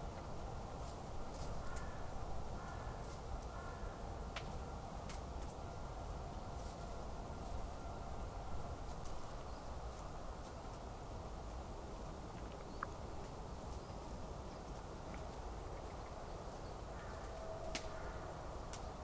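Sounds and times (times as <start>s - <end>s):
dry leaves crackling: 0.0s - 5.6s, 6.4s - 7.8s
low background hiss: 0.0s - 19.0s.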